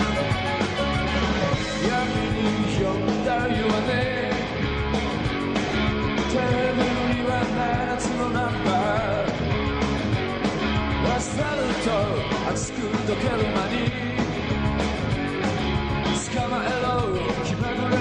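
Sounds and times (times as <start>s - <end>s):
rock band playing: 0.0s - 18.0s
person singing: 1.2s - 4.6s, 6.2s - 9.4s, 11.0s - 14.4s, 16.0s - 18.0s.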